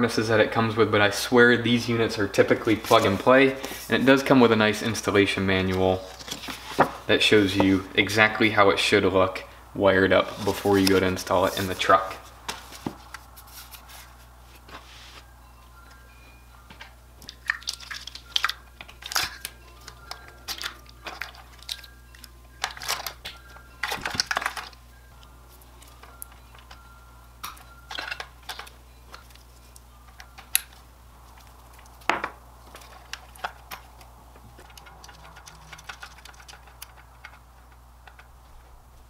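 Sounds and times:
plastic connectors clicking and rattling: 0:17.2 - 0:21.9, 0:22.6 - 0:24.8, 0:27.4 - 0:29.4, 0:30.1 - 0:38.3.

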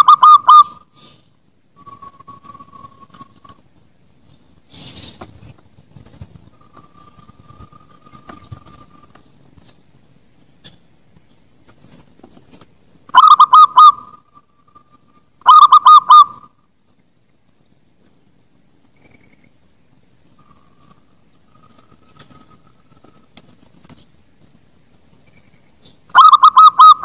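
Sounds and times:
dove cooing: 0:00.0 - 0:00.9, 0:13.1 - 0:16.5, 0:26.1 - 0:27.0.

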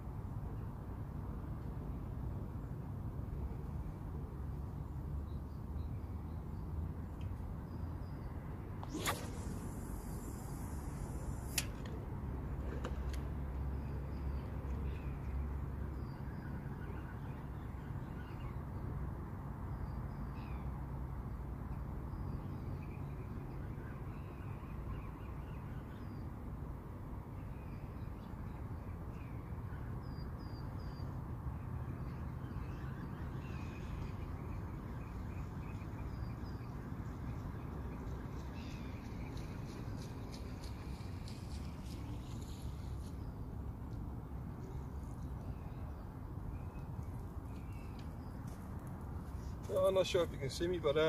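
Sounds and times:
steady low rumble: 0:08.9 - 0:12.6.

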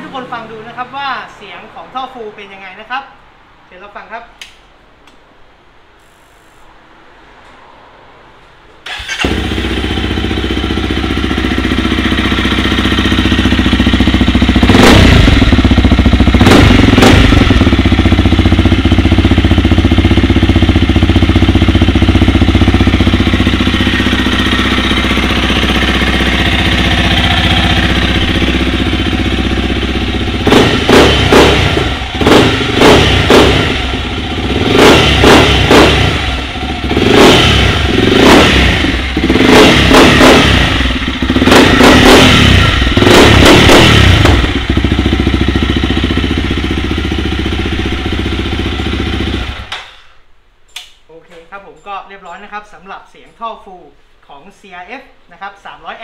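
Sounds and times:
motorcycle engine idling and revving: 0:08.8 - 0:49.8.

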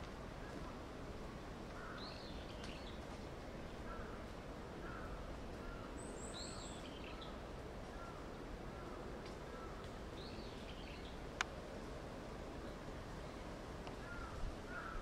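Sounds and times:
outdoor background noise: 0:00.0 - 0:15.0
high falling bird calls: 0:01.7 - 0:11.3
birds chirping: 0:01.7 - 0:11.5.

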